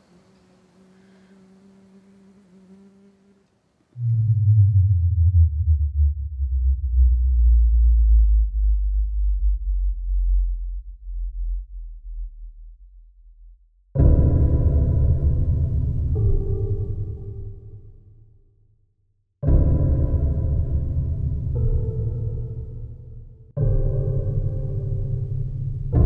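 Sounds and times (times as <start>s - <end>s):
faint buzzing hum: 0.0s - 5.1s
deep low drone: 4.0s - 18.1s, 19.4s - 26.0s.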